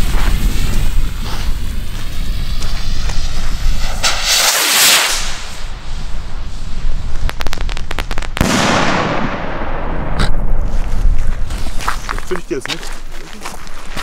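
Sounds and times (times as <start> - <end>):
rocket lifting off with hiss: 0.0 - 9.5
firework crackles: 0.0 - 12.0
sharp firework bang: 2.6 - 5.8, 7.3 - 10.6.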